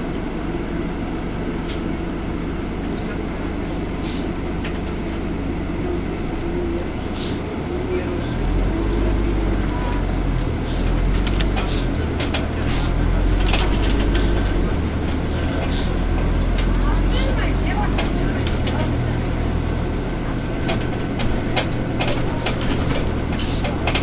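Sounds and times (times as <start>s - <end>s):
bus engine running: 0.0s - 24.0s
clicks and rattles in cabin: 10.4s - 24.0s.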